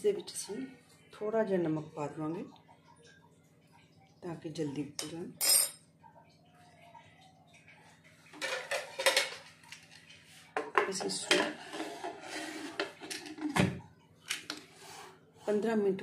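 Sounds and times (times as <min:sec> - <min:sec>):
metal lid clanking and scraping: 0:10.7 - 0:13.6.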